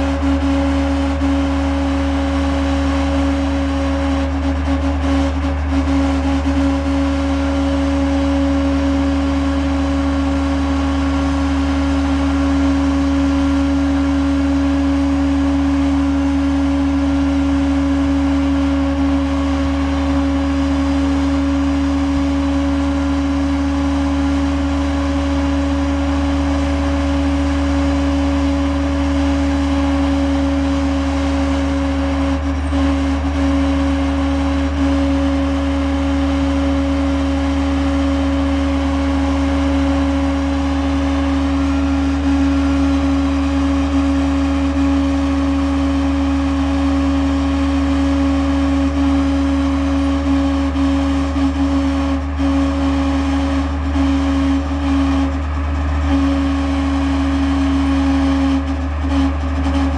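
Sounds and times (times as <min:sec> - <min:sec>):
diesel engine running: 0:00.0 - 0:59.9
hydraulic whine: 0:00.0 - 0:59.9.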